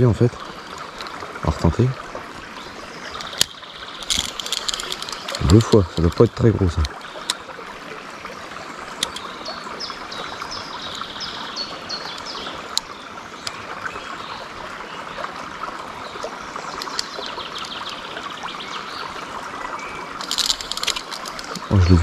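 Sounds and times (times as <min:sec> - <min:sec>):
river flowing over stones: 0:00.0 - 0:22.0
sharp ticks: 0:03.2 - 0:07.4, 0:09.0 - 0:09.3, 0:16.7 - 0:18.0.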